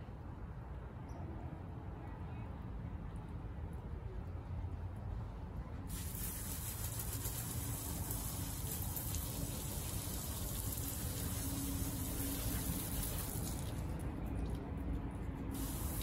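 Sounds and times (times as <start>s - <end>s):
water spraying from a hose: 5.9s - 14.1s, 15.5s - 16.0s.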